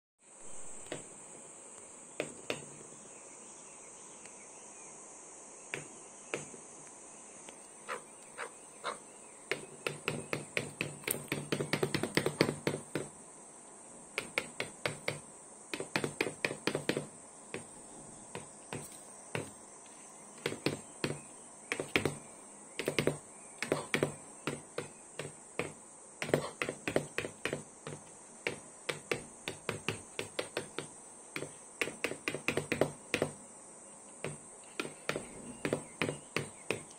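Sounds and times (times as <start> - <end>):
bird beak tapping on screen: 2.2 - 2.8, 5.7 - 6.6, 7.9 - 13.1, 14.2 - 17.7, 18.3 - 19.6, 20.4 - 33.4, 34.2 - 36.9.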